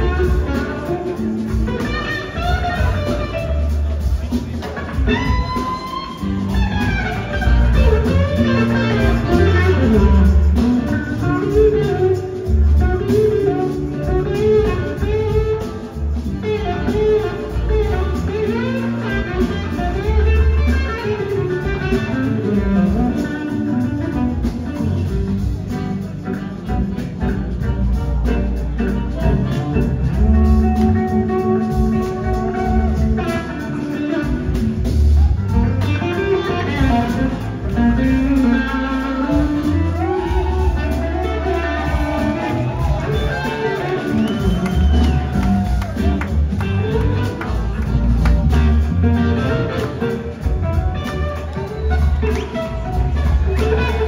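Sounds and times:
blues-rock band playing: 0:00.0 - 0:54.0
electric slide guitar lead: 0:00.0 - 0:54.0
horn section: 0:04.9 - 0:15.4, 0:25.0 - 0:54.0.

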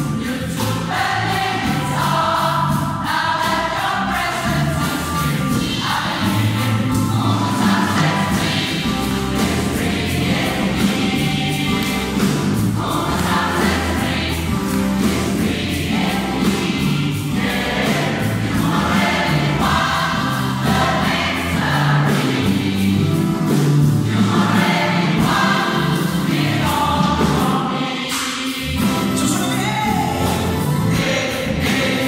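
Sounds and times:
bass line: 0:00.0 - 0:27.6, 0:28.6 - 0:32.0
gospel choir singing: 0:00.0 - 0:32.0
steady beat: 0:00.0 - 0:32.0.

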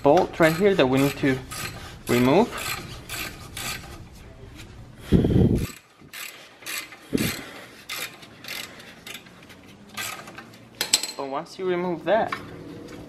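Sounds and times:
ratchet wrench clicking: 0:00.0 - 0:04.0, 0:05.6 - 0:09.3, 0:10.0 - 0:10.4.

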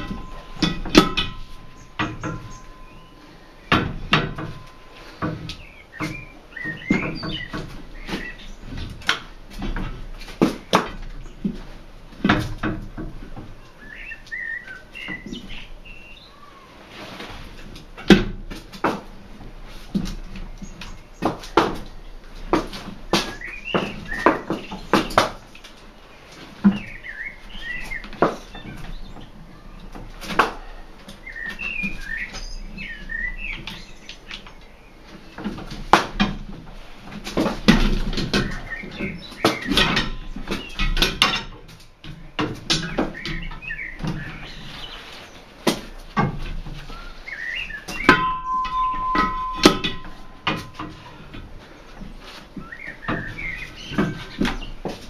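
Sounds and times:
high chirping squeaks: 0:00.0 - 0:08.7, 0:46.9 - 0:51.9
tire levers clanking on rim: 0:00.0 - 0:16.3, 0:17.3 - 0:25.8, 0:26.5 - 0:55.0
steady high squeal: 0:47.6 - 0:51.3.

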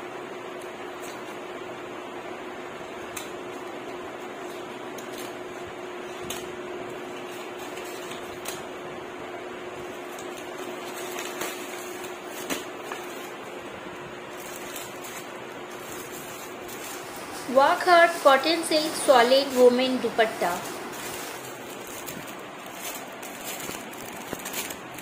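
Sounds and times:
steady background hum: 0:00.0 - 0:25.0
scissors snipping plastic bag: 0:02.8 - 0:08.8, 0:09.8 - 0:13.6, 0:14.3 - 0:25.0
bag being handled: 0:18.7 - 0:25.0.

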